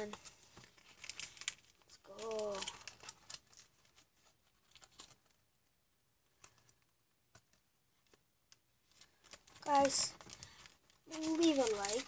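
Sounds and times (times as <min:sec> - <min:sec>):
trading cards clicking and rustling: 0:00.0 - 0:03.7, 0:09.0 - 0:12.0.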